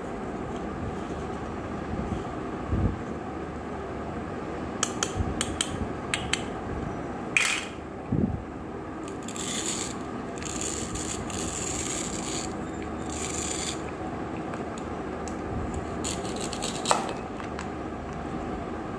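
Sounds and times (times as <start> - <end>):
scratchy rubbing: 9.1 - 13.9.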